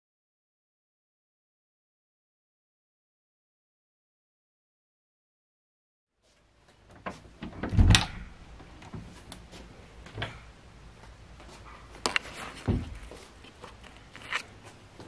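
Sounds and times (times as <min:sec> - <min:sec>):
door heavy thump: 0:07.4 - 0:08.4, 0:12.7 - 0:13.0
door knocks and clicks: 0:07.4 - 0:08.4.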